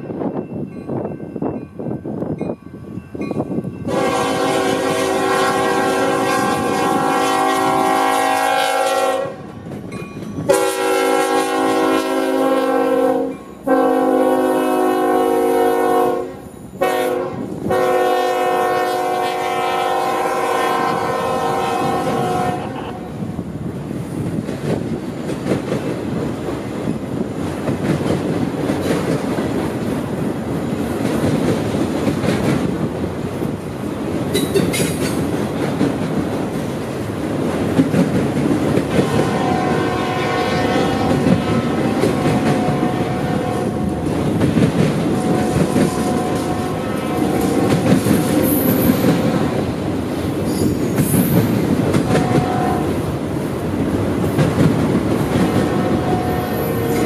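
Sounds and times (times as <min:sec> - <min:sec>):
train horn blasts: 0:03.8 - 0:09.5, 0:10.5 - 0:23.1, 0:39.0 - 0:44.1, 0:45.0 - 0:49.7, 0:52.0 - 0:53.1, 0:55.4 - 0:57.0.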